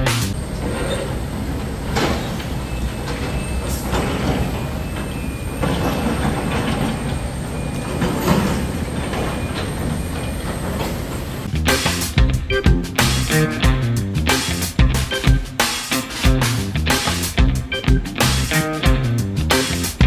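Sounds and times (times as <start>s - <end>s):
moving vehicle rumble: 0.0s - 12.4s.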